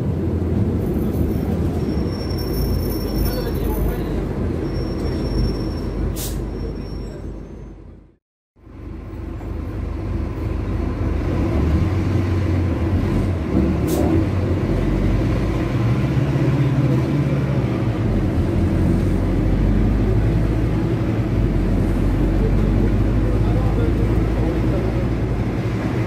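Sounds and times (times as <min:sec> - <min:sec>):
bus diesel engine running: 0:00.0 - 0:26.0.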